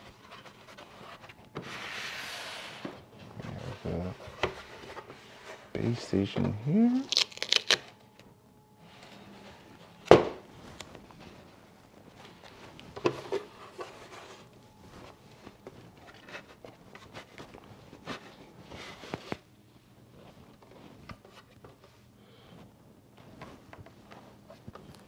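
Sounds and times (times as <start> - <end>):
plastic wrap rustling: 6.8 - 8.0.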